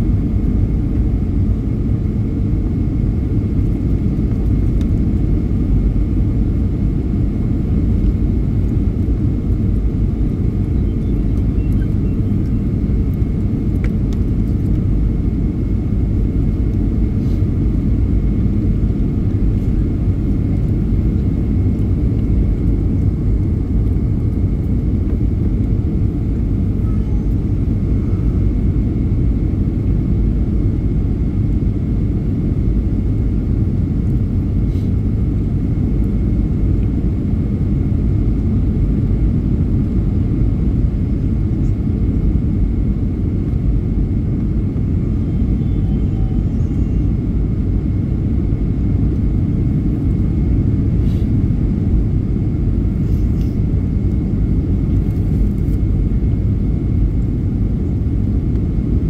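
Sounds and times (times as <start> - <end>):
faint high tone: 45.2 - 47.1.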